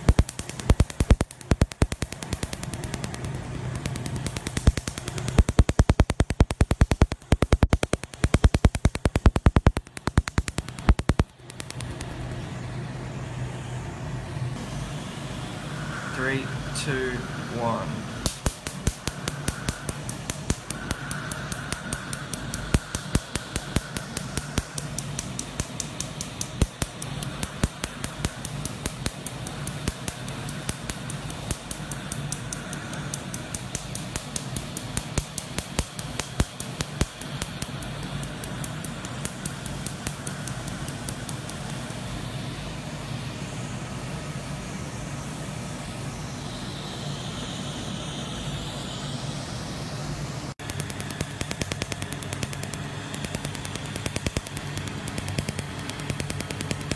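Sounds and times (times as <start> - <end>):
laser pulses snapping: 0.0 - 12.4, 18.2 - 42.2, 50.6 - 56.9
steady low hum: 0.0 - 56.9.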